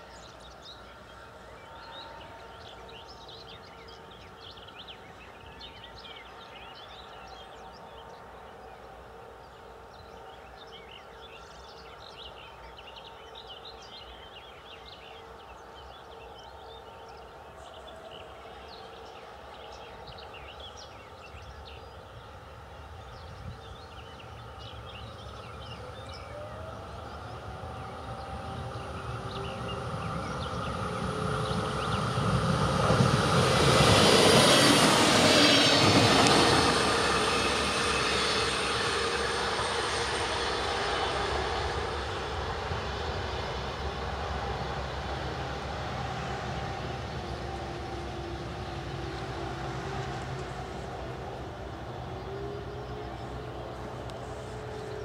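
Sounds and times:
train passing on rails: 0.0s - 55.0s
distant sirens wailing: 24.2s - 55.0s.

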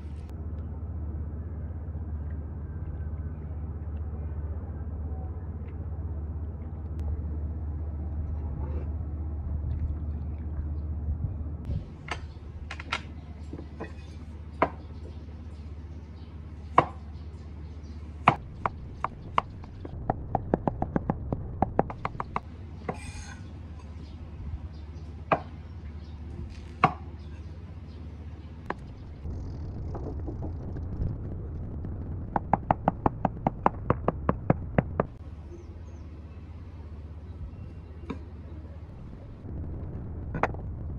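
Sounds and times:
low rumble: 0.0s - 12.7s, 18.2s - 22.7s, 28.6s - 36.0s, 38.7s - 40.9s.

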